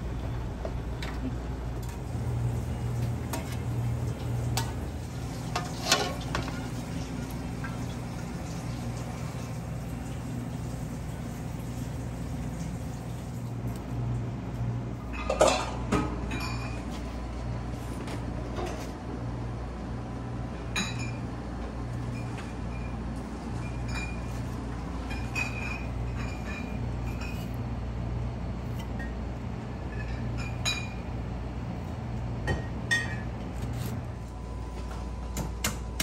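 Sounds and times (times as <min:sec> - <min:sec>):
steady low hum: 0:00.0 - 0:08.3
pots and dishes clattering: 0:05.4 - 0:06.9, 0:15.1 - 0:16.9, 0:25.0 - 0:27.5.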